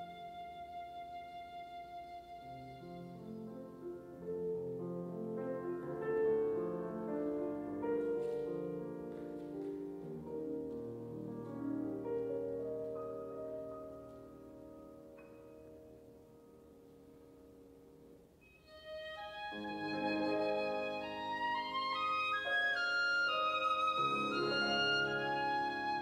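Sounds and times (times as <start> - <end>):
slow instrumental music: 18.4 - 26.0.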